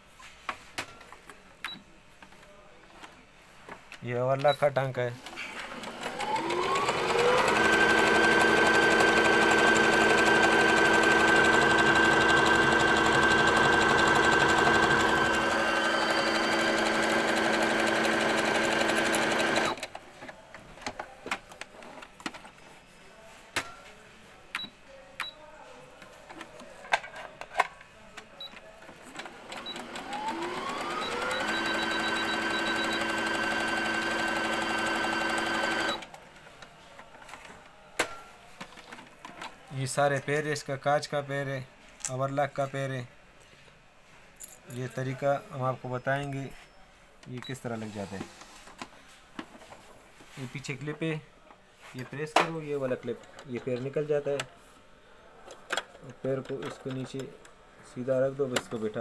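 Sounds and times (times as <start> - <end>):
sewing machine running: 5.7 - 19.8, 29.2 - 36.1.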